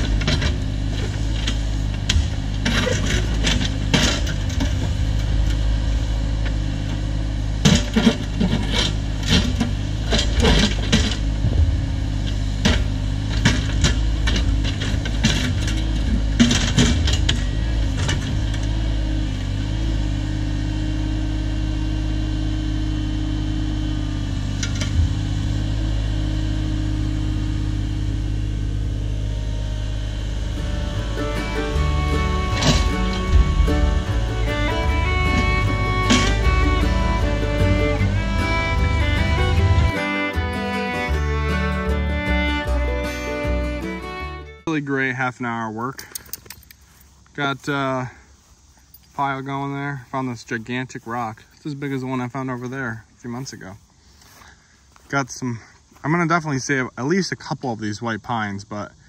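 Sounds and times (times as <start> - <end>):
digging knocks and clatters: 0.0 - 18.9, 31.0 - 39.9
excavator diesel engine running: 0.0 - 56.4.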